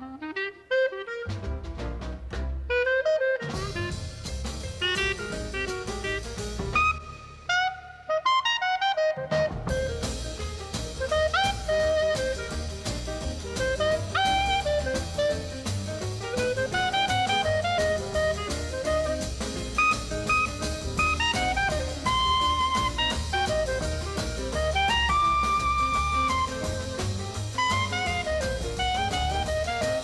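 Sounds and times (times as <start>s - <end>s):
bass: 0.0s - 30.0s
jazz horn melody: 0.0s - 30.0s
drum kit beat: 1.2s - 8.2s, 9.1s - 30.0s.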